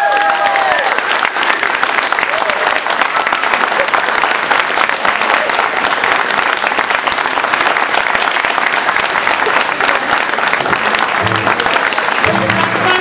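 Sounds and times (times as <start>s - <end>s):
audience applauding: 0.0s - 13.0s
music: 11.0s - 13.0s.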